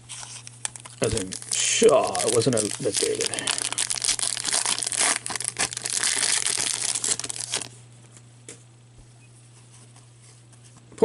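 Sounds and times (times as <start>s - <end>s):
foil wrapper crinkling and tearing: 0.0s - 7.8s
steady low hum: 0.0s - 11.0s.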